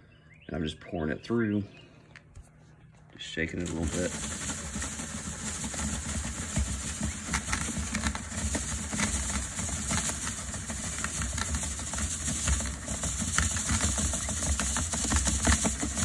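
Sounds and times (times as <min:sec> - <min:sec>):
sand sifting through screen: 0:03.4 - 0:16.0.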